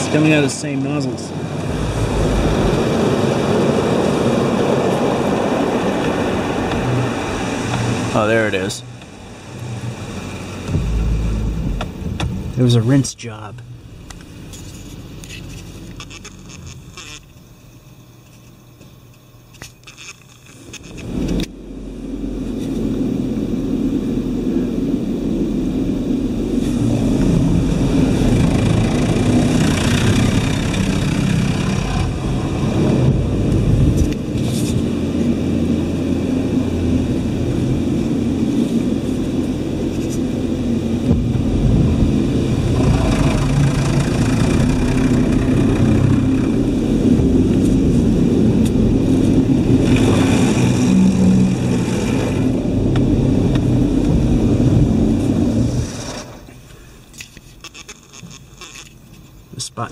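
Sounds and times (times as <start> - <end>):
car wash water spray: 0.0 - 12.9, 20.6 - 56.8.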